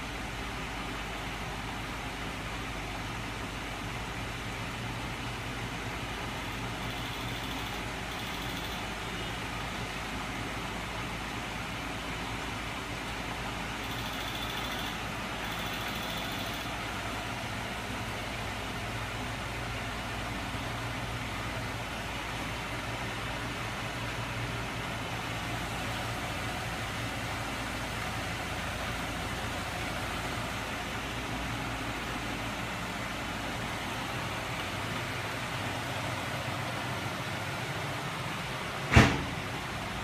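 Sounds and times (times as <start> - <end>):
faint high whine: 6.4 - 9.4, 13.7 - 16.9.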